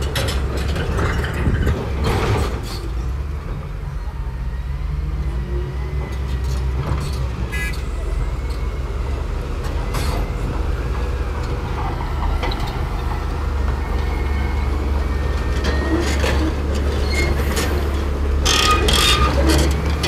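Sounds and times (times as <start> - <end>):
steel tracks clanking: 0.0 - 4.3, 5.2 - 20.0
bulldozer diesel engine running: 0.0 - 20.0.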